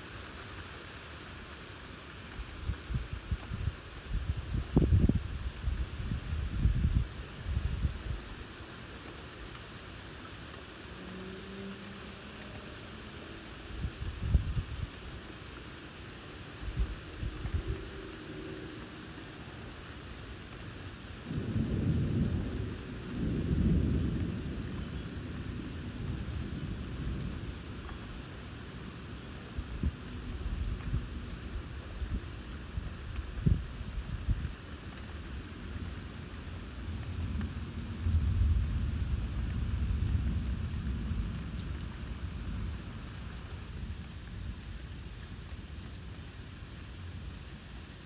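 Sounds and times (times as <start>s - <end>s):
rain hissing: 0.0s - 48.0s
thunder rumbling: 21.2s - 27.8s, 36.9s - 42.8s
rolling thunder: 21.3s - 27.5s.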